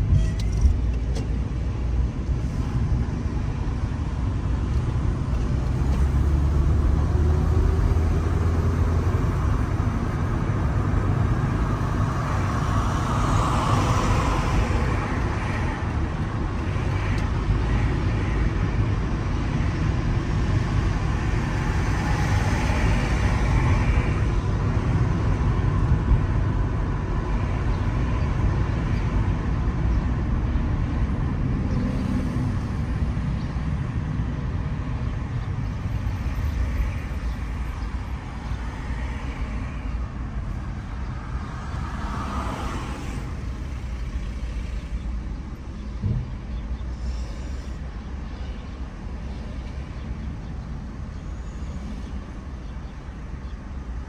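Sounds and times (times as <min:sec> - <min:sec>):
car road and engine noise: 0:00.0 - 0:54.0
short thump: 0:46.0 - 0:46.3.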